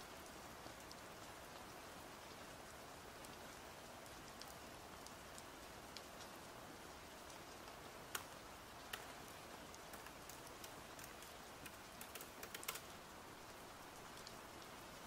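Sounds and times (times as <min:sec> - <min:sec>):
faint rain hiss: 0:00.0 - 0:15.0.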